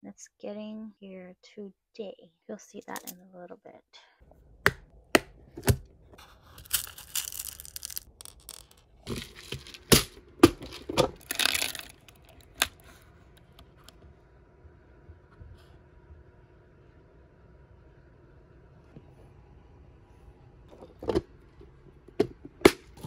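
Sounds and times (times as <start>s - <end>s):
plastic box clicks and knocks: 4.6s - 5.9s
beads rattling: 6.5s - 13.0s.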